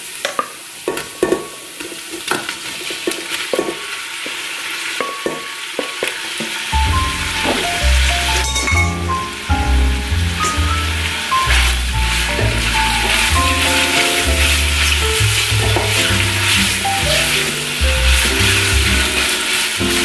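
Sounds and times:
onions sizzling in oil: 0.0s - 20.0s
background music with bass: 6.8s - 20.0s.

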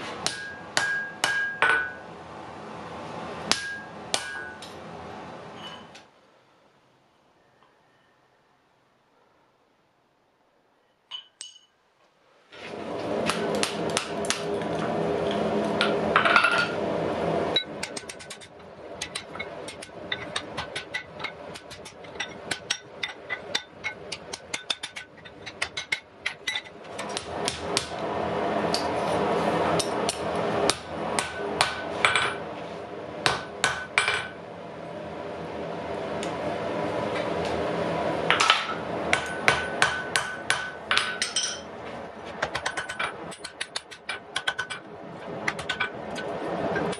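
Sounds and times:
steady hum: 0.0s - 7.2s, 12.6s - 46.9s
hammer striking iron on anvil: 0.2s - 2.0s, 3.5s - 4.7s, 17.8s - 26.4s, 29.8s - 32.4s, 33.2s - 34.4s, 38.3s - 41.7s.

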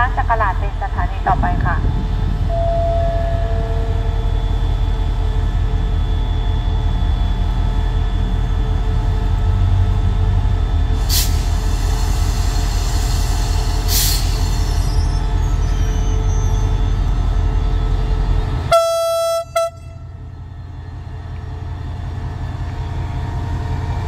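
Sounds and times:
locomotive engine rumble: 0.0s - 24.0s.

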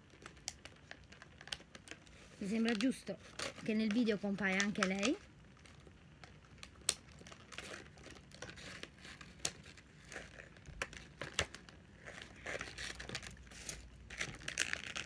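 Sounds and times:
plastic packaging crinkling and tearing: 0.0s - 15.0s.

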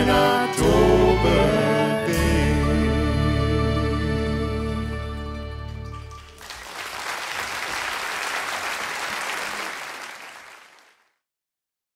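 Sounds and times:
audience applauding: 5.7s - 11.1s.

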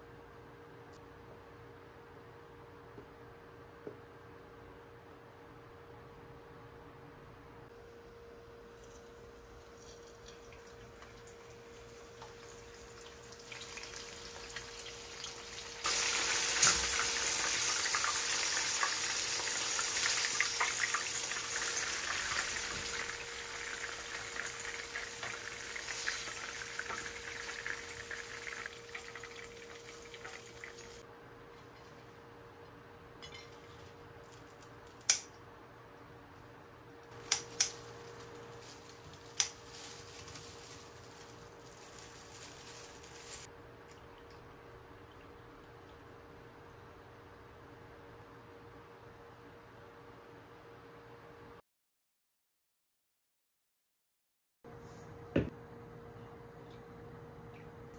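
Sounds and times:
faint steady hum: 0.0s - 51.6s, 54.7s - 57.9s
oil sizzling and crackling: 8.8s - 31.0s, 37.1s - 43.5s.

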